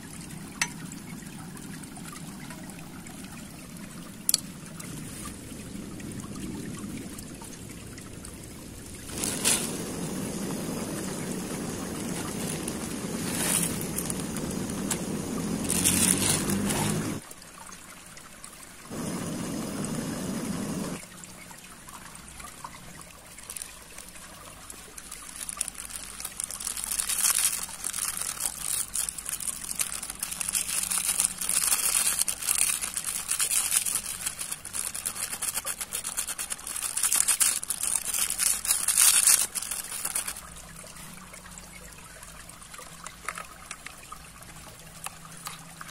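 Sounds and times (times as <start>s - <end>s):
water bubbling in a pan: 0.0s - 45.9s
crackly rustling: 9.1s - 17.2s, 23.3s - 41.0s.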